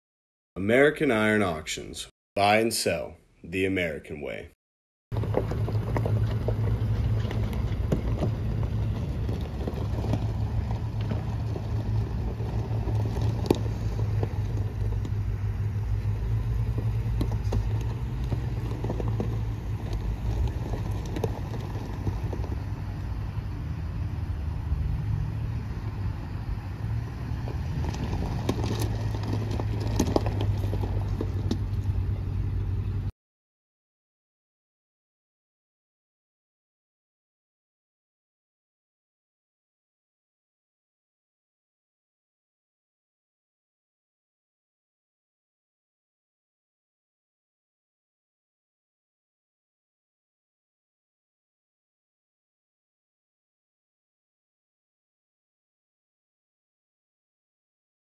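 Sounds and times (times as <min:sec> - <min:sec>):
truck engine running: 0:05.1 - 0:33.1
tyres crunching on gravel: 0:05.1 - 0:33.1.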